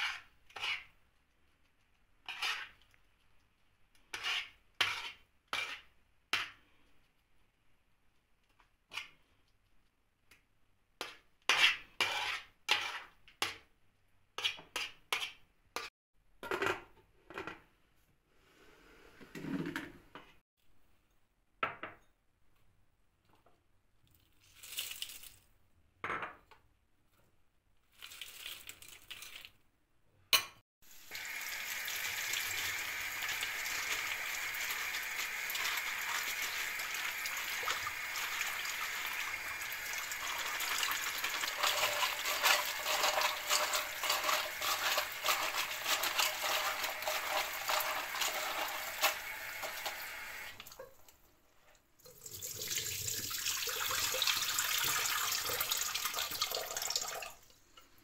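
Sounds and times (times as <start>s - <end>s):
kitchen tap running: 30.9s - 51.1s, 52.0s - 57.5s
water pouring into sink: 31.0s - 51.0s, 52.0s - 57.5s
hand stirring vegetables in water: 32.5s - 50.0s.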